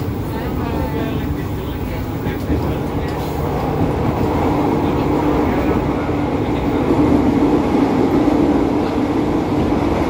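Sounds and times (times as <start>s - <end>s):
train wheels rolling on rail: 0.0s - 10.0s.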